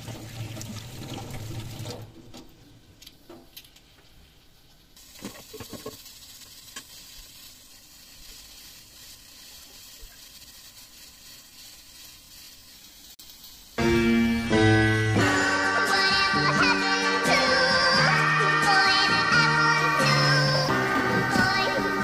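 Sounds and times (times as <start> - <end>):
low steady hiss: 2.0 - 14.6.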